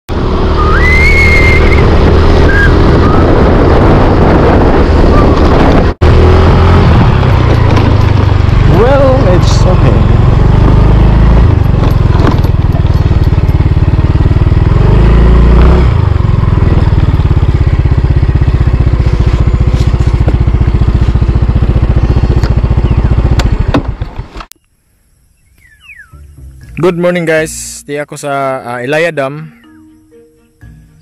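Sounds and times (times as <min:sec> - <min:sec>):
scooter engine running: 0:00.1 - 0:24.4
wind rumble on microphone: 0:00.2 - 0:24.4.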